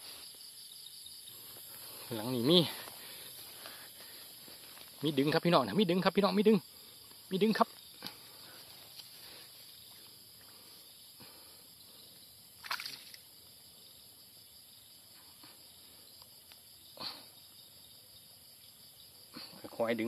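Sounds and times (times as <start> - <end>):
insect hiss: 0.0 - 20.0
swishing through water and plants: 7.9 - 13.8.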